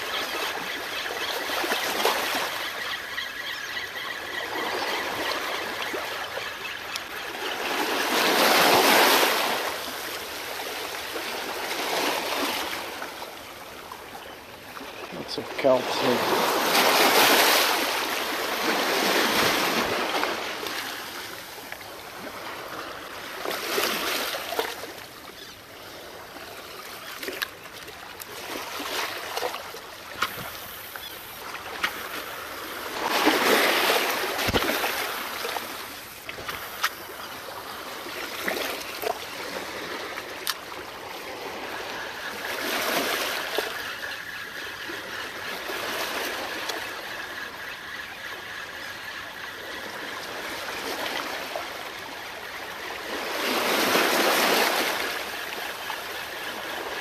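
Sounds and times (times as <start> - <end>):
small waves washing against rocks: 7.3 - 13.2, 15.1 - 25.0, 28.2 - 43.9, 52.7 - 57.0.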